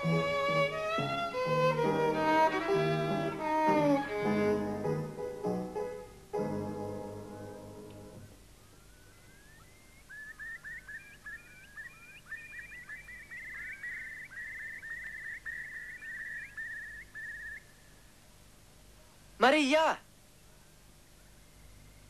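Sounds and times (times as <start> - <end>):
birds calling: 0.0 - 5.2, 8.2 - 18.4.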